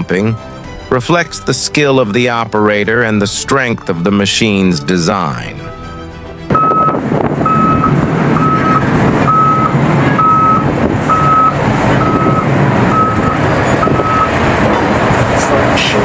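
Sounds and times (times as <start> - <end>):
diesel machinery running: 0.0 - 16.0
reversing alarm beeping: 6.5 - 14.4.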